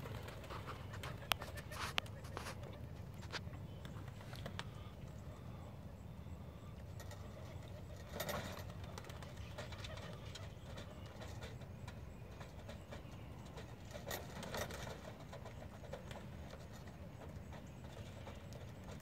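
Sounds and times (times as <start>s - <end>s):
pigeon wings flapping: 0.0s - 2.7s.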